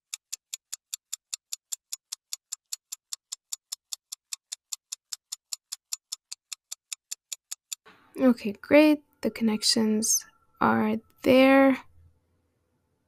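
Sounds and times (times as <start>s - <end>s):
fast high-pitched ticks: 0.1s - 7.8s.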